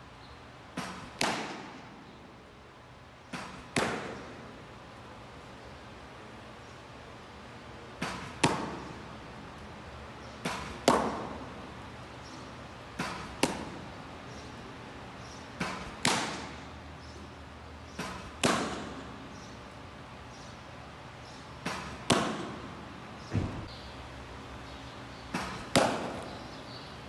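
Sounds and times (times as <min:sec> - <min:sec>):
baseball smacking into mitt: 0:00.8 - 0:01.8, 0:03.3 - 0:04.4, 0:08.0 - 0:09.0, 0:10.4 - 0:11.4, 0:13.0 - 0:13.9, 0:15.6 - 0:16.7, 0:18.0 - 0:19.1, 0:21.6 - 0:22.7, 0:25.3 - 0:26.4.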